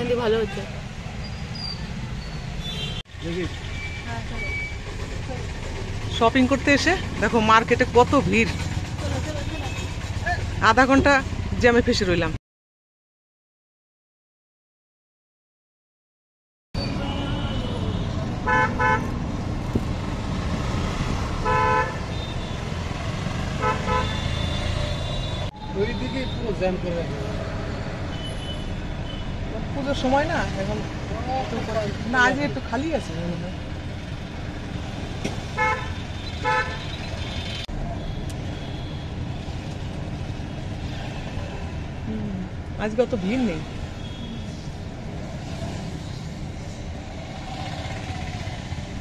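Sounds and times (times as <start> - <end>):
engines and road noise: 0.0 - 12.4, 16.8 - 49.0
vehicle horns honking: 2.6 - 4.8, 16.8 - 19.1, 21.4 - 22.8, 23.6 - 26.7, 28.1 - 29.4, 35.6 - 37.1, 37.9 - 39.2, 44.0 - 44.6.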